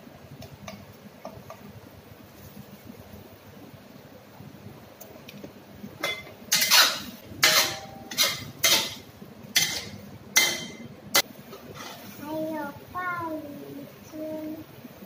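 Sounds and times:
metal spatula scraping a wok: 6.5 - 9.0, 9.6 - 12.2.

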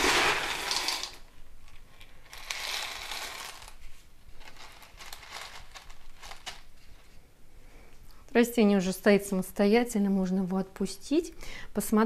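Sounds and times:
clay pebbles crunching in plastic pot: 0.0 - 1.2, 2.0 - 6.7.

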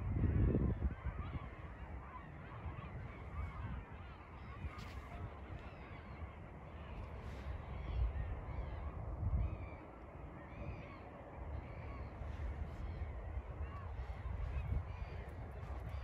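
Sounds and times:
flock of birds calling: 0.0 - 16.0.

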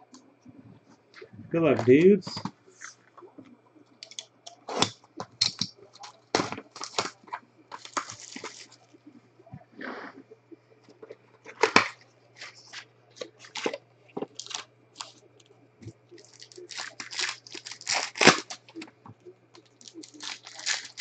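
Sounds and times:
foil wrappers crinkling and tearing: 4.0 - 8.8, 11.5 - 18.9, 19.5 - 21.0.

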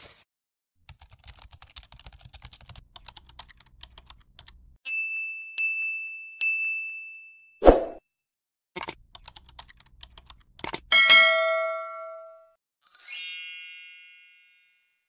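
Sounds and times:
bright dings: 4.9 - 7.6.

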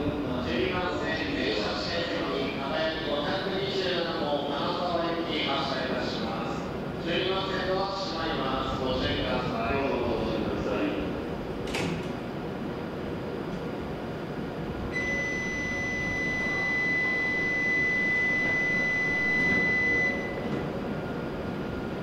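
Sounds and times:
platform hum: 0.0 - 22.0
high electronic tone: 14.9 - 20.5.

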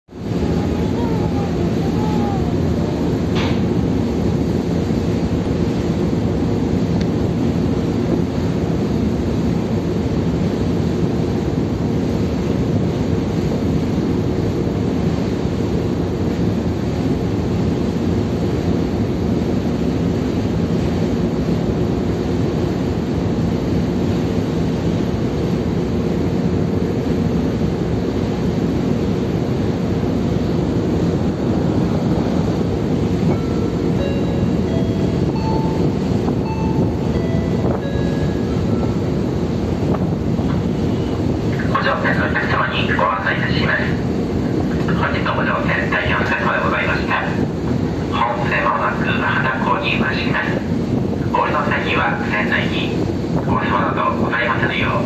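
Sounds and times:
ship engines humming: 0.1 - 55.0
wake rushing along hull: 0.1 - 55.0
wind buffeting microphone: 30.0 - 41.6.

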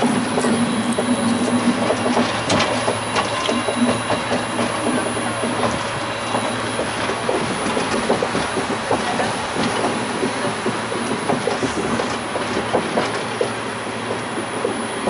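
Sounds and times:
monorail car rolling rumble: 0.0 - 15.0.

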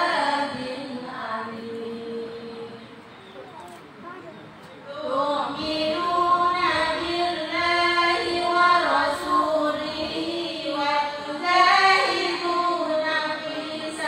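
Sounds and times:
women chanting in unison: 0.0 - 3.0, 4.9 - 14.0.

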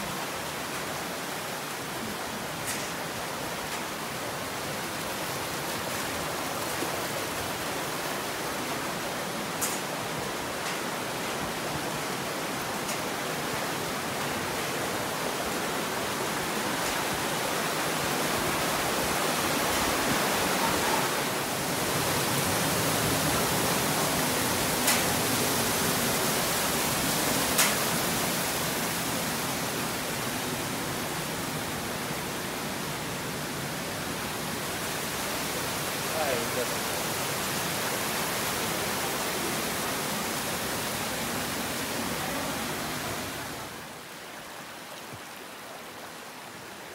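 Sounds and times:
mountain stream rushing: 0.0 - 46.9.

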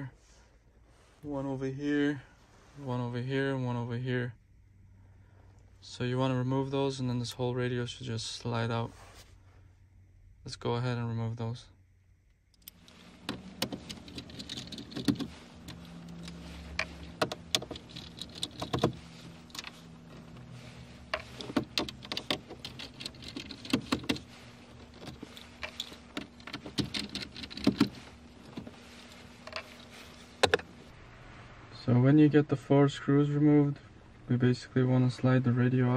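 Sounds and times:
steady low hum: 0.0 - 35.9
screwdriver clicks and rattles: 12.6 - 19.8, 21.0 - 28.7.

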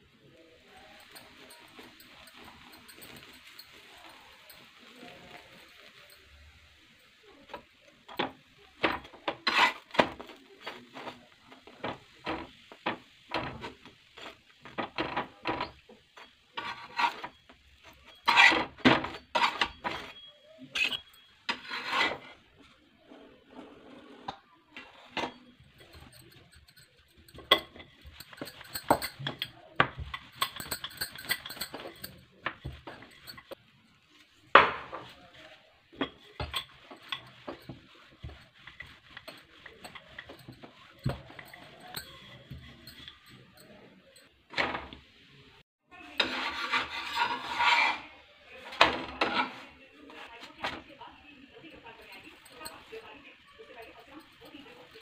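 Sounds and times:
metal spatula scraping iron pan: 7.6 - 33.6, 34.5 - 44.0, 46.0 - 50.8.

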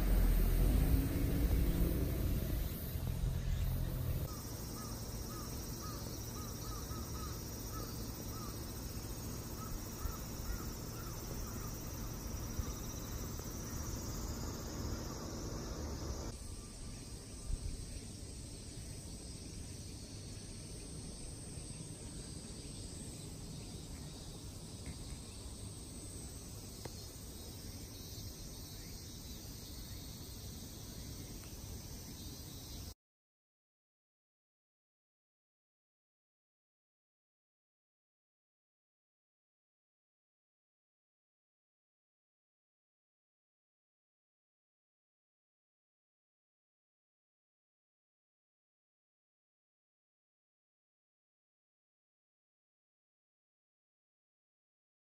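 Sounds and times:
low rumble: 0.0 - 4.3
insects chirping: 0.0 - 33.0
short bird calls: 2.6 - 8.7.

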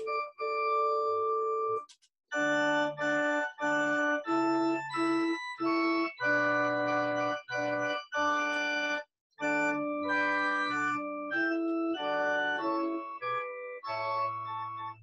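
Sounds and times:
organ playing held chords: 9.4 - 15.0.

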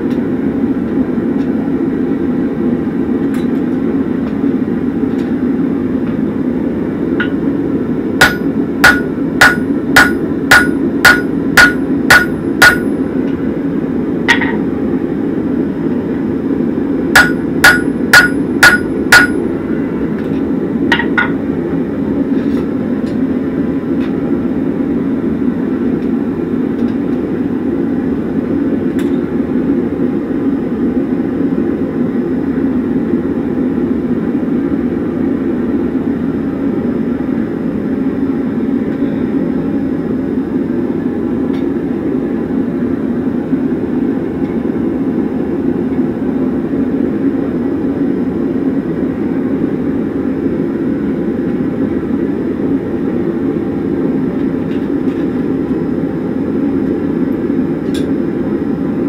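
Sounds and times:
hammer striking chisel on metal: 8.2 - 13.0, 17.2 - 19.5.

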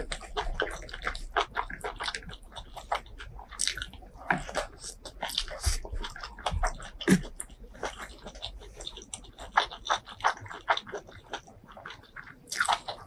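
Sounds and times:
person chewing with wet smacks: 0.0 - 13.0.

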